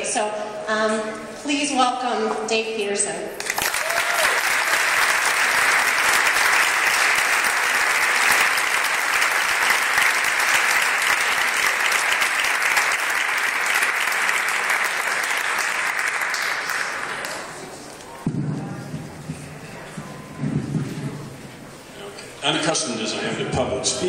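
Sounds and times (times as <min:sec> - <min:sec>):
audience applauding: 0:03.4 - 0:17.7.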